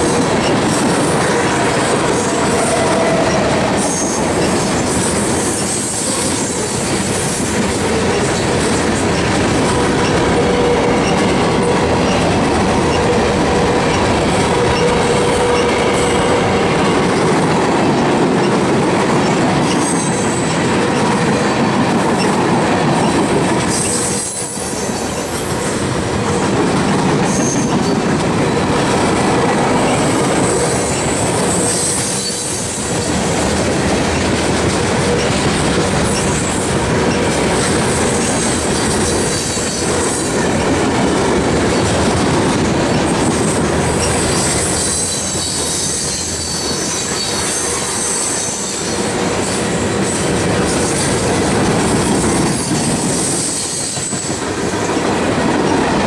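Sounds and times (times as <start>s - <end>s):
freight train wheels rumbling on rails: 0.0s - 56.0s.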